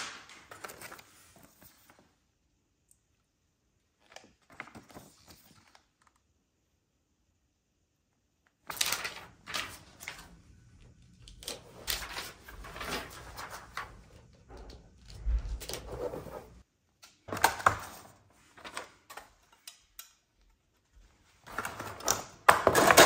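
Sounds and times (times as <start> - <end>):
plastic sheets rustling: 0.0 - 2.2, 8.6 - 16.6.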